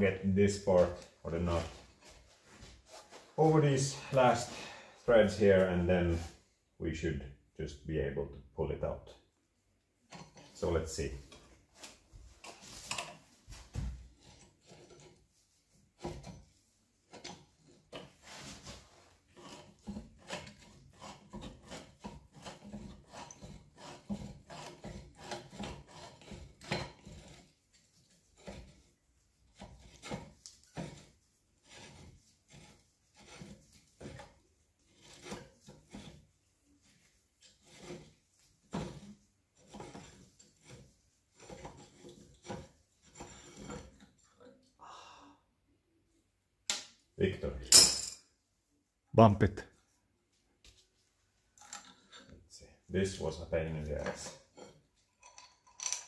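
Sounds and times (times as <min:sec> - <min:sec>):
metal scrapes and clicks: 0:14.2 - 0:15.2, 0:17.1 - 0:44.7, 0:53.9 - 0:56.0.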